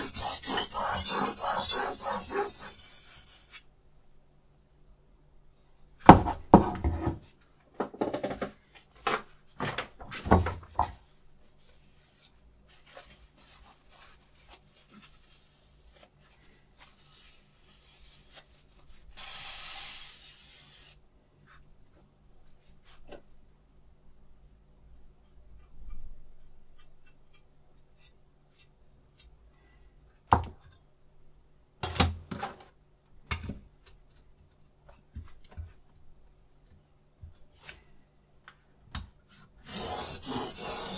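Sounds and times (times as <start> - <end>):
cloth rubbing along blade: 0.0 - 3.6, 39.7 - 40.9.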